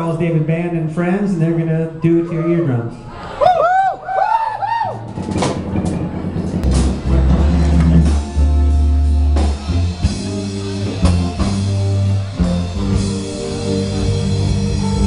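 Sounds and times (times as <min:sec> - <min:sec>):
live rock band playing: 0:05.0 - 0:15.0
sharp drum hits: 0:05.1 - 0:08.5.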